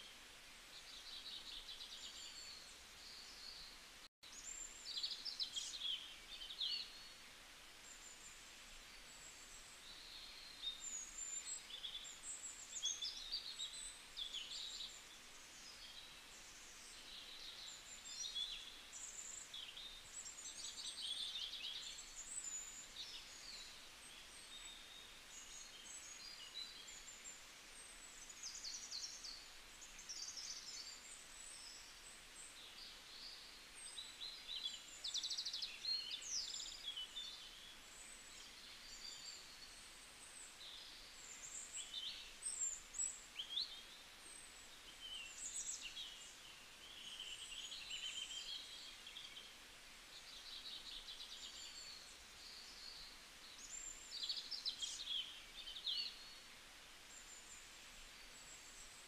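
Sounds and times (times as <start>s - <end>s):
faint steady hiss: 0.0s - 59.0s
songbirds chirping and trilling: 0.0s - 59.0s.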